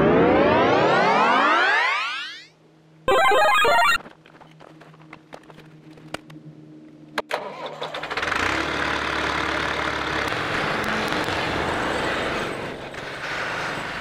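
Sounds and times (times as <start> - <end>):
diesel engine running: 8.0 - 14.0.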